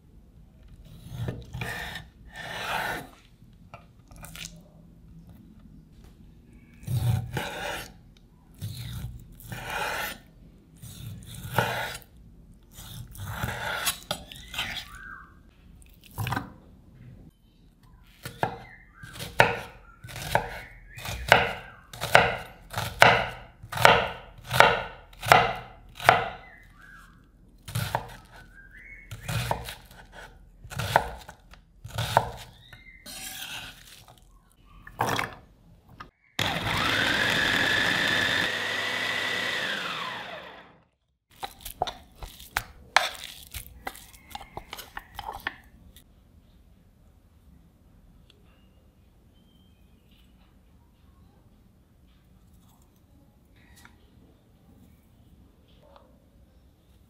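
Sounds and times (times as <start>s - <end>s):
knife chopping on wooden board: 18.2s - 26.4s, 29.1s - 32.5s
food processor motor whine: 36.4s - 40.9s.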